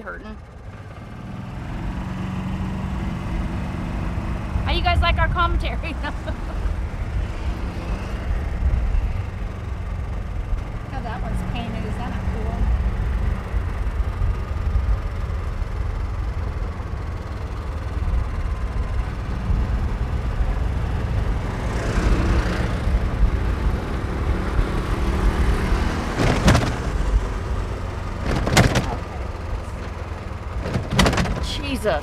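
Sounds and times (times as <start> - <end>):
golf cart road noise: 0.0 - 32.0
sharp knocks: 26.1 - 27.1, 28.2 - 29.1, 30.6 - 31.5.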